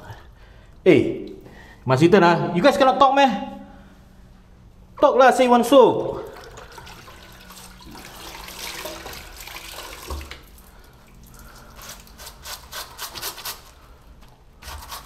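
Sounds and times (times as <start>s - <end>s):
water running from tap: 6.1s - 12.2s
hands rubbing soap: 11.4s - 15.0s.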